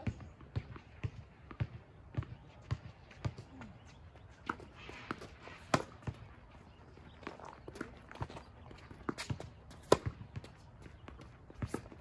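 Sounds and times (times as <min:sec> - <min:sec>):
tennis ball bouncing: 0:04.4 - 0:06.4, 0:07.2 - 0:12.0
racket hitting tennis ball: 0:04.5 - 0:06.3, 0:09.0 - 0:12.0.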